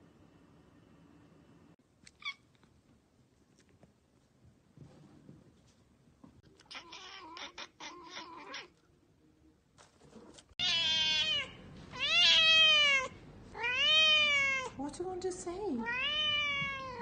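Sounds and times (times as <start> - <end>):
cats meowing: 6.5 - 8.8, 10.6 - 14.8, 15.8 - 17.0.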